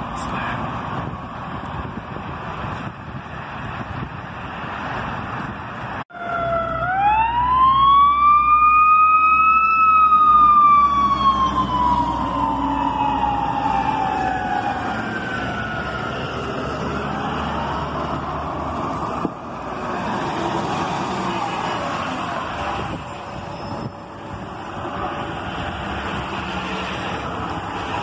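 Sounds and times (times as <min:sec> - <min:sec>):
street noise: 0:00.0 - 0:28.0
truck engine rumble: 0:00.0 - 0:28.0
fire truck siren wailing: 0:06.1 - 0:28.0.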